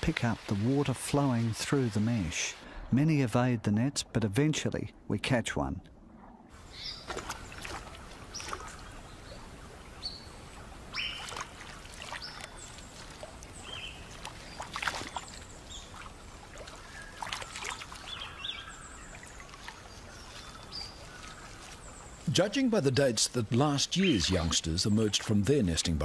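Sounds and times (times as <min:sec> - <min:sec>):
outdoor background noise: 0:00.0 - 0:26.0
birds chirping: 0:06.6 - 0:26.0.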